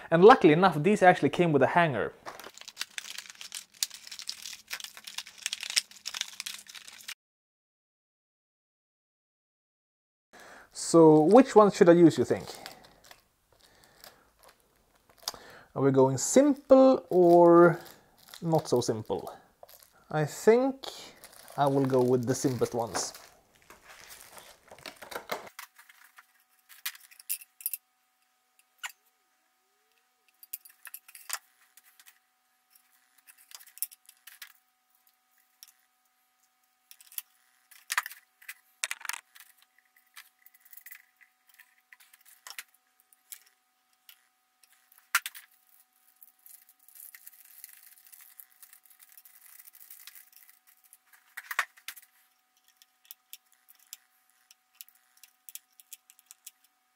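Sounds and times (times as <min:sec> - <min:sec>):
plastic packaging crinkling: 0:02.2 - 0:07.2, 0:12.1 - 0:15.6, 0:16.2 - 0:20.2, 0:20.8 - 0:27.4, 0:36.9 - 0:56.7.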